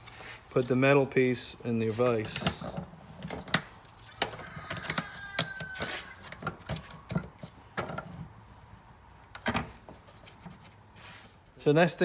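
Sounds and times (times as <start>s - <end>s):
metal rubbing squeak: 3.9s - 6.6s.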